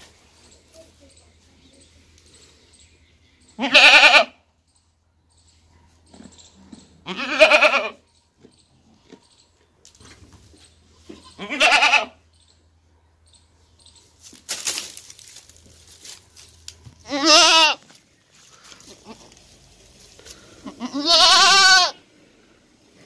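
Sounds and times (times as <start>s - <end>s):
goat bleating: 3.6s - 4.4s, 7.0s - 8.0s, 11.0s - 12.2s, 17.0s - 17.9s, 18.9s - 19.4s, 20.6s - 22.0s.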